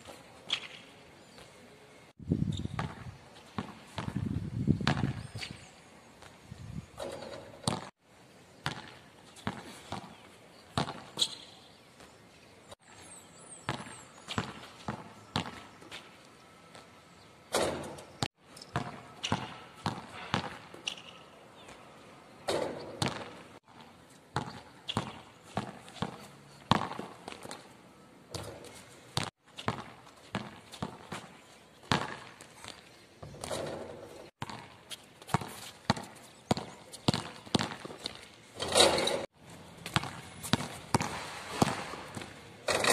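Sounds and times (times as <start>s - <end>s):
basketball bouncing on hard court: 2.5s - 5.3s, 7.6s - 7.9s, 8.6s - 10.1s, 10.8s - 11.5s, 13.7s - 15.7s, 17.6s - 21.2s, 22.5s - 27.2s, 29.2s - 31.3s, 31.9s - 38.2s, 39.8s - 42.9s.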